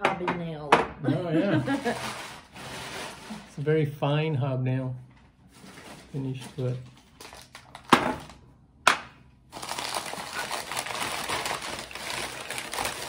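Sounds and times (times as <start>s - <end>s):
packing paper rustling: 1.6s - 3.6s, 5.5s - 8.4s, 9.5s - 13.0s.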